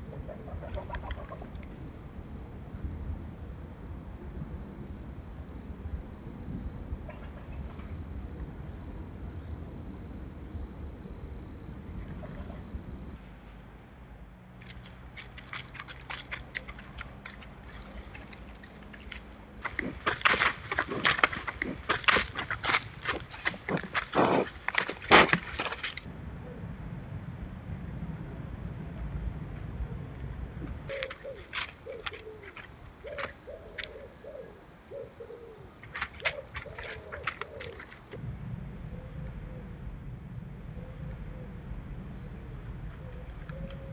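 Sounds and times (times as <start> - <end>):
leaves crunching under feet: 14.6 - 26.1, 30.9 - 34.0, 35.8 - 38.2
short dry crackles: 14.6 - 26.1, 30.9 - 34.0, 35.8 - 38.2
bird cooing: 19.6 - 24.6, 30.8 - 38.0.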